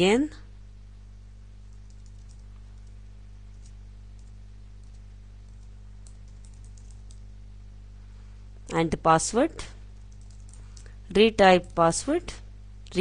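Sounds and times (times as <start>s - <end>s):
steady low hum: 0.0s - 13.0s
keyboard typing: 1.6s - 7.3s, 10.0s - 11.0s.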